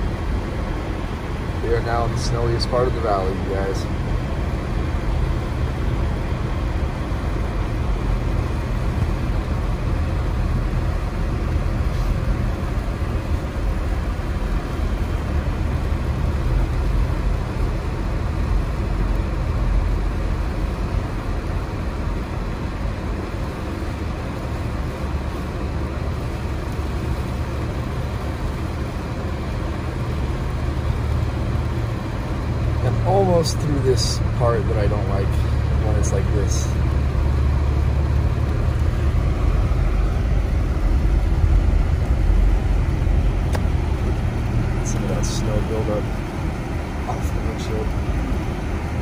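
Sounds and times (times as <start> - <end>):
car driving on snowy road: 0.0 - 49.0.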